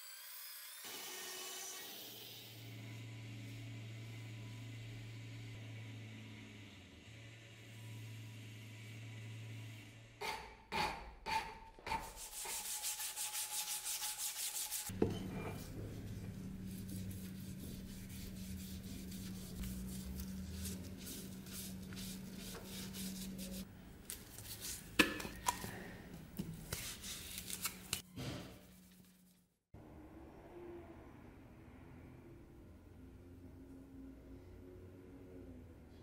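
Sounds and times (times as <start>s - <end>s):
gloved hand rubbing wooden handle: 11.9s - 14.9s, 15.5s - 23.6s.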